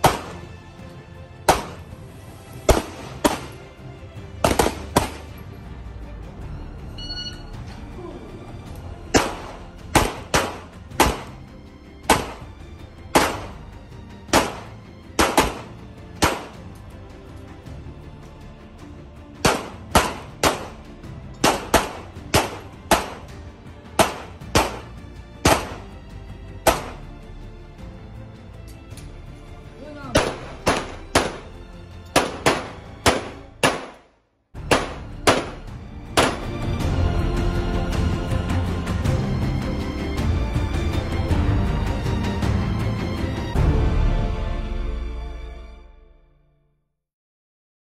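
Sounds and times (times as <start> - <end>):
pistol shots: 0.0 - 0.5, 1.4 - 2.0, 2.6 - 3.7, 4.4 - 5.4, 9.1 - 11.4, 12.0 - 12.5, 13.1 - 13.6, 14.3 - 16.6, 19.4 - 20.8, 21.4 - 23.4, 24.0 - 25.9, 26.7 - 27.1, 30.2 - 36.6.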